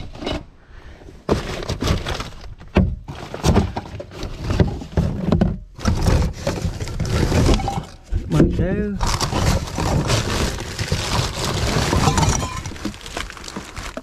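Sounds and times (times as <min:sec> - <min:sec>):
plastic bags rustling: 0:05.8 - 0:14.0.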